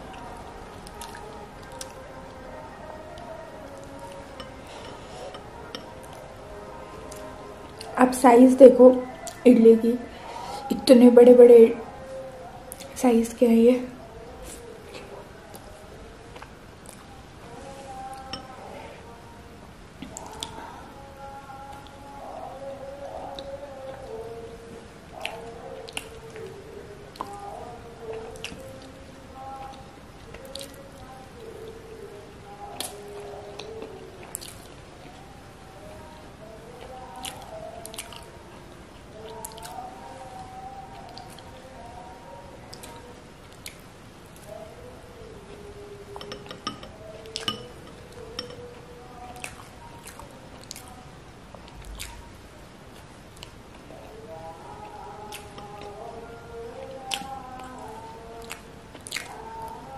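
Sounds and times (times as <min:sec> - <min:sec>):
wet chewing of soft food: 0:00.1 - 0:02.0, 0:25.2 - 0:31.5, 0:32.5 - 0:35.3, 0:36.7 - 0:41.7, 0:42.7 - 0:43.8, 0:45.4 - 0:52.3, 0:52.9 - 0:56.1, 0:56.8 - 0:59.9
wet squishy chewing: 0:33.6 - 0:35.2, 0:51.7 - 0:52.2, 0:57.0 - 0:59.6.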